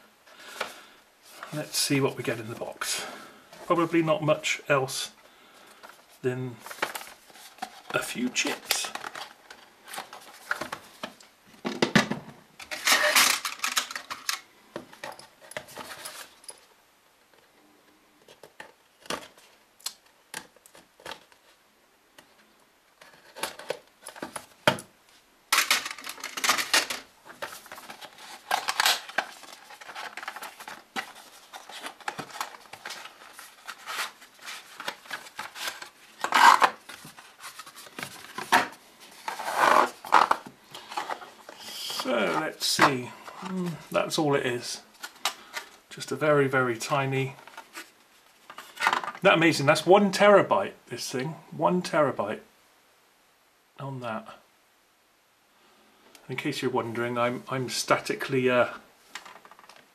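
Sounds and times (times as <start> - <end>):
plastic tray rustling: 5.8 - 16.6, 25.5 - 44.2, 47.2 - 49.3, 59.0 - 59.9.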